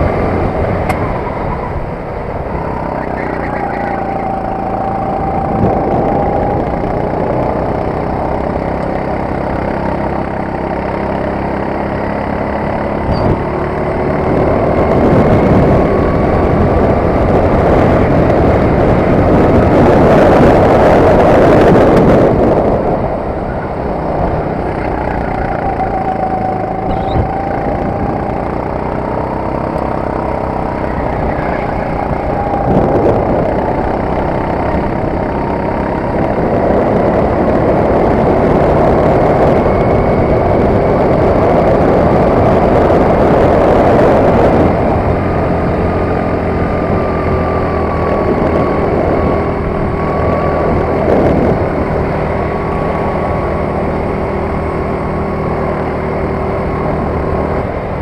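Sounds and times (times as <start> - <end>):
kart engine at speed: 0.0 - 58.0.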